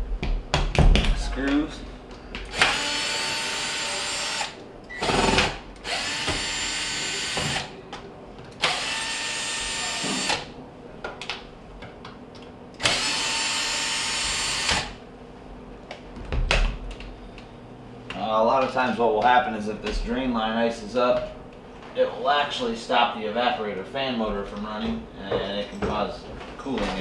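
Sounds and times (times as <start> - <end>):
cordless drill running: 2.5 - 7.7, 8.6 - 10.5, 12.8 - 15.0.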